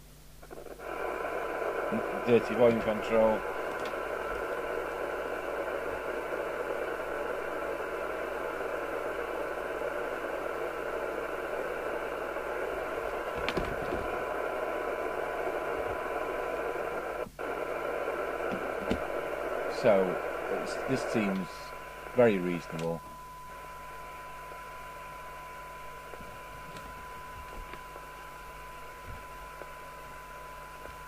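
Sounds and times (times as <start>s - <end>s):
faint steady test tone: 0.0s - 31.0s
radio receiver hiss: 0.0s - 31.0s.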